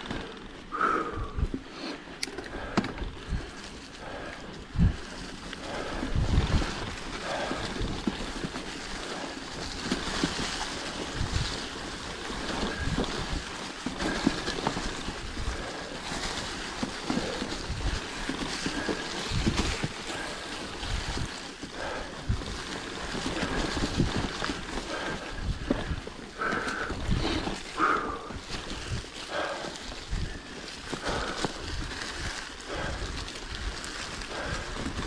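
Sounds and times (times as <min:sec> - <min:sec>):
tyres crunching through leaves: 0:00.0 - 0:35.0
bike knocks and rattles: 0:02.2 - 0:29.6
wind noise on microphone: 0:02.9 - 0:20.0, 0:20.6 - 0:35.0.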